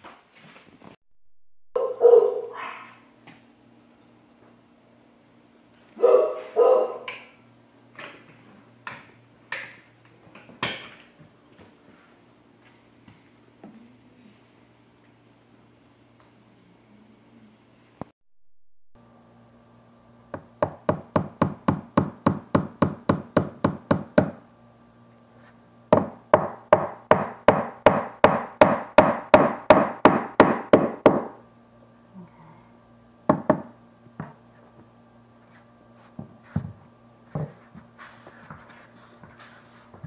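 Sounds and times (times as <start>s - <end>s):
hammer tapping nails into trim: 20.4s - 24.4s, 25.9s - 31.3s.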